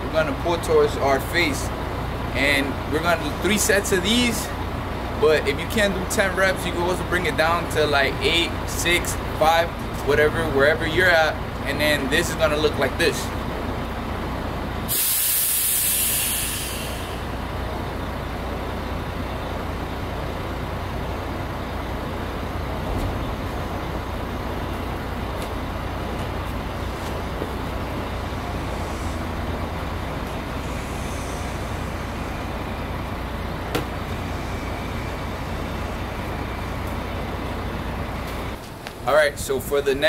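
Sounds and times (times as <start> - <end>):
road traffic rumble: 0.0 - 40.0
burst of hissing air: 14.9 - 17.3, 30.6 - 32.3.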